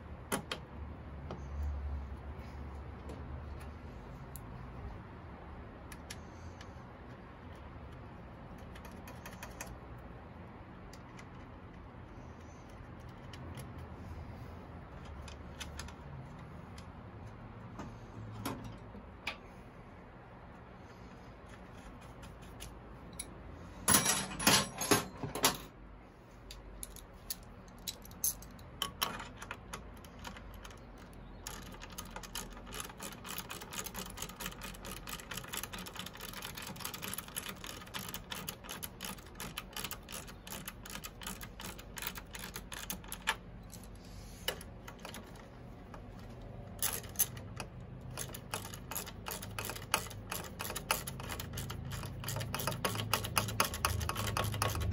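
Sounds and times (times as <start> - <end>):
hand tools clicking on metal: 26.5 - 54.9.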